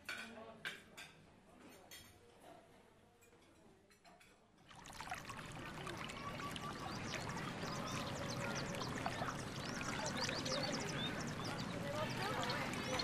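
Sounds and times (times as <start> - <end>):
running water rush: 4.7 - 13.0
small birds chirping: 5.2 - 13.0.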